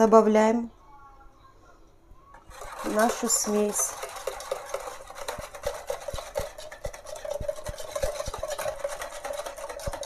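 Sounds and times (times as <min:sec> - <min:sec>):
flour pouring into bowl: 0:02.5 - 0:10.0.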